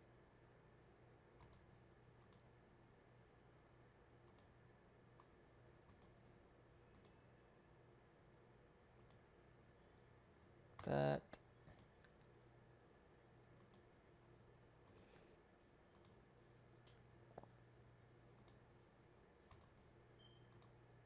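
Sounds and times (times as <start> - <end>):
low room hum: 0.0 - 21.0
computer mouse clicks: 1.4 - 2.5, 4.2 - 4.5, 5.9 - 6.2, 6.9 - 7.2, 9.0 - 9.2, 11.6 - 12.2, 13.6 - 13.9, 14.8 - 15.1, 15.9 - 16.2, 18.4 - 18.6, 19.5 - 20.8.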